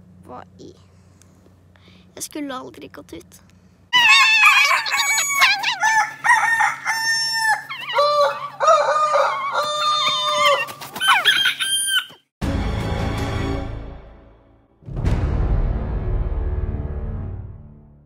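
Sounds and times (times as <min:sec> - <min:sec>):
music: 0:12.4 - 0:18.0.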